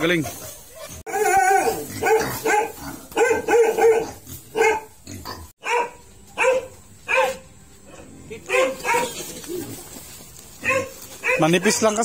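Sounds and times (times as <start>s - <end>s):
dog barking: 0.7s - 5.0s, 5.6s - 9.3s, 10.6s - 11.7s.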